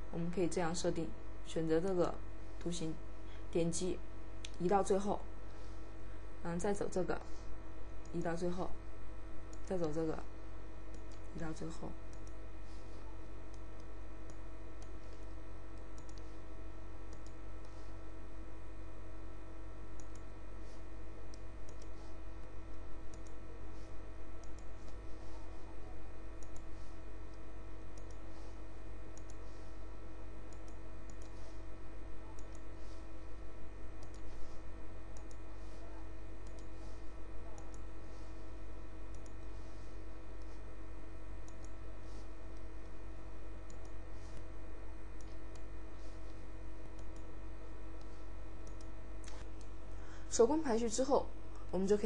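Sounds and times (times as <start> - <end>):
electrical hum: 0.0 - 52.0
computer mouse clicking: 10.9 - 12.4, 13.5 - 16.4, 17.1 - 17.8, 19.9 - 20.3, 21.3 - 23.4, 24.4 - 25.4, 26.4 - 28.5, 29.1 - 29.5, 30.5 - 31.6, 32.3 - 33.0, 34.0 - 35.8, 36.4 - 37.0, 37.6 - 38.2, 39.1 - 39.8, 41.4 - 43.0, 43.7 - 44.5, 47.0 - 47.3, 48.0 - 49.7.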